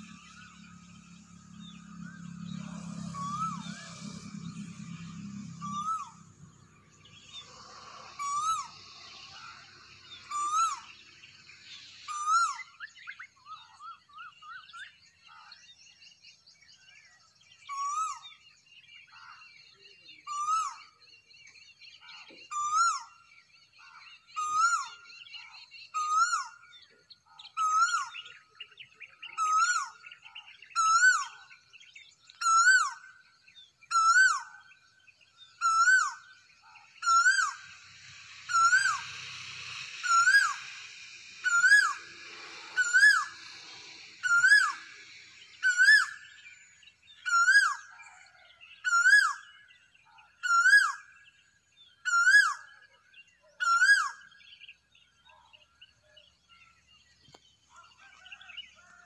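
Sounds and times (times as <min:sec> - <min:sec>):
faint bird chirps: 0:00.0 - 0:59.0
cuckoo calling: 0:35.6 - 0:49.5.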